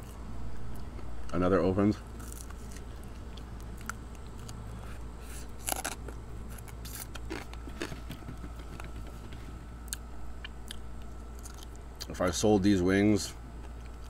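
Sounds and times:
crunching crispy chicken: 0:02.2 - 0:08.1.

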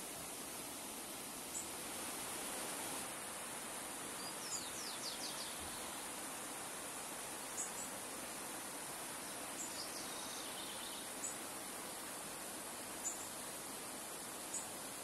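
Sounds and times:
small birds chirping: 0:04.0 - 0:06.2, 0:07.4 - 0:08.1, 0:09.1 - 0:12.1, 0:13.0 - 0:13.4, 0:14.4 - 0:15.0.

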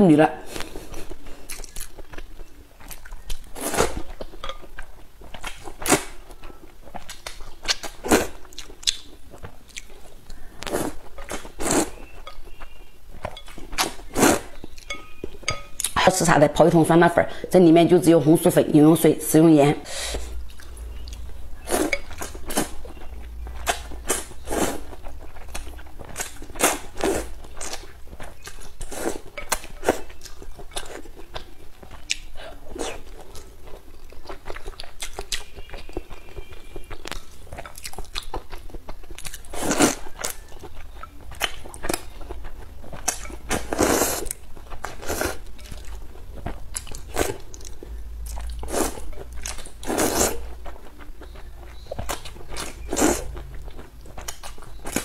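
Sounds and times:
wet chewing and mouth clicks: 0:00.5 - 0:16.0, 0:20.3 - 0:55.0.

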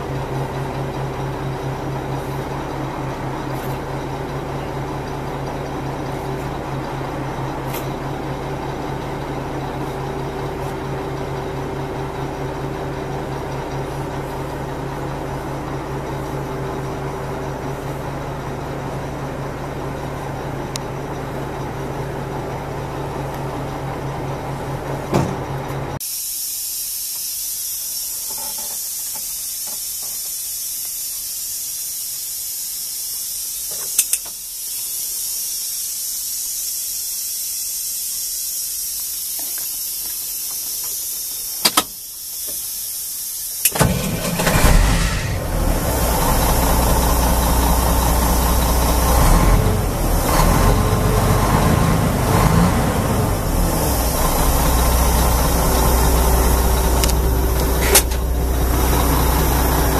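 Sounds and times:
truck diesel engine running: 0:00.0 - 0:26.0, 0:43.6 - 0:59.9
steady high hiss: 0:26.0 - 0:44.6, 0:45.3 - 0:50.3, 0:53.1 - 0:59.9.

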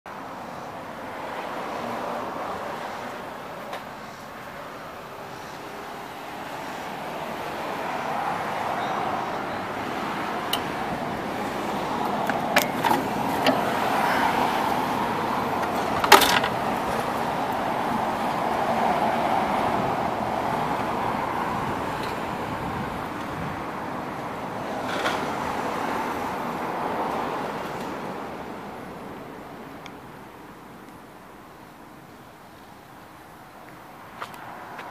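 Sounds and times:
lawn mower engine running: 0:10.5 - 0:17.0.

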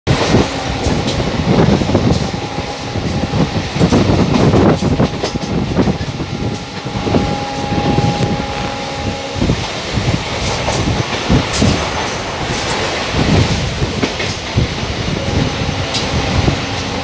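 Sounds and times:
train clattering and rattling: 0:00.1 - 0:17.0
train wheels rumbling on rail: 0:00.1 - 0:17.0
thin steady whine: 0:00.3 - 0:10.0.

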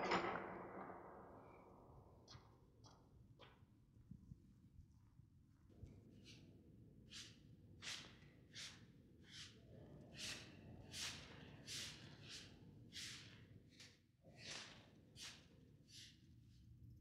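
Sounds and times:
broom sweeping floor: 0:07.1 - 0:16.2.

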